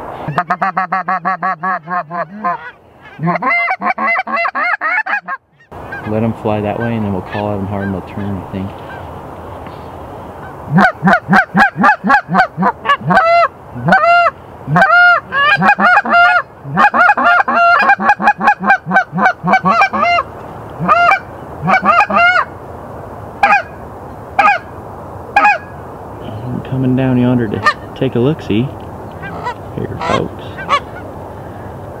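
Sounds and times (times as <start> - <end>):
goose call honks and clucks: 0.0 - 9.0, 10.4 - 22.5, 23.4 - 23.8, 24.4 - 24.7, 25.4 - 25.8, 27.5 - 27.9, 29.2 - 31.1.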